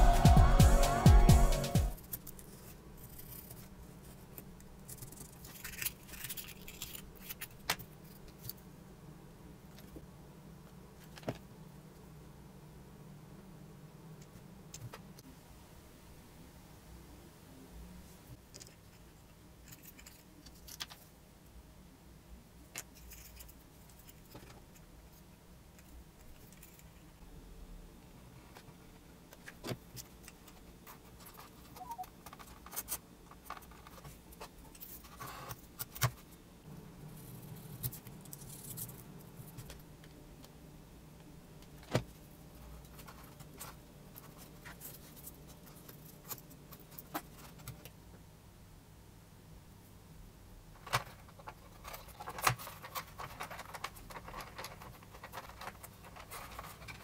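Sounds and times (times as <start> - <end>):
small parts clicking and scraping: 2.0 - 8.6, 18.4 - 21.1, 22.7 - 27.2, 29.3 - 36.3, 50.8 - 57.0.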